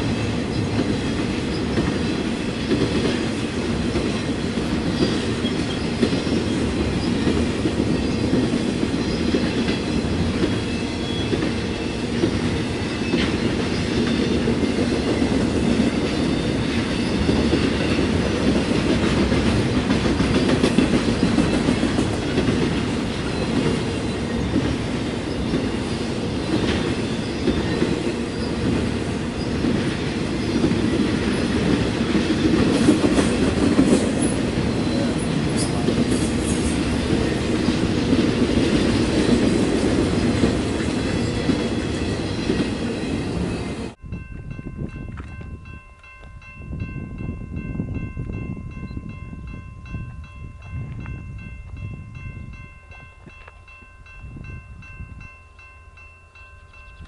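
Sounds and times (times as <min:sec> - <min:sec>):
train wheels rumbling on rail: 0:00.0 - 0:55.3
wheels clacking over rail joints: 0:00.5 - 0:44.0.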